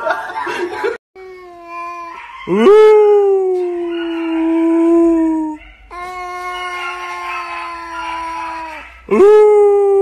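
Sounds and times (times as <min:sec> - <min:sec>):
cat yowling: 0:05.5 - 0:09.3.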